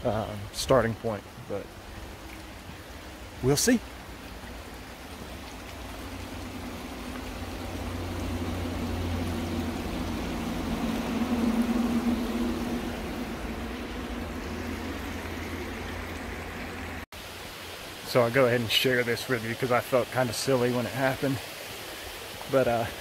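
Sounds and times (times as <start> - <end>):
vehicle passing on highway: 4.0 - 17.1.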